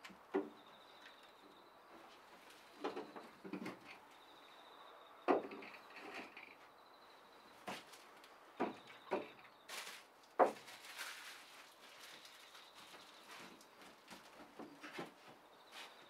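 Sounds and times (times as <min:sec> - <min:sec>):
sharp knocks and clunks: 0:00.0 - 0:00.7, 0:05.2 - 0:06.4, 0:08.6 - 0:09.4.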